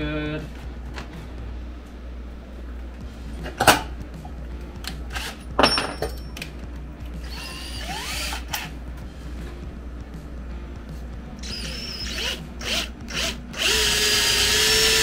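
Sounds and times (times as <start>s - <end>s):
tools knocking on wooden workbench: 5.5s - 6.2s.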